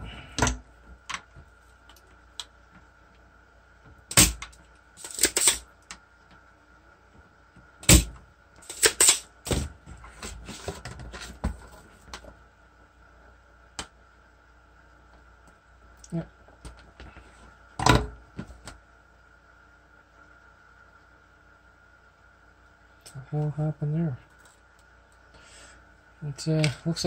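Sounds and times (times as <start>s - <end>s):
faint high hum: 0.0s - 27.0s.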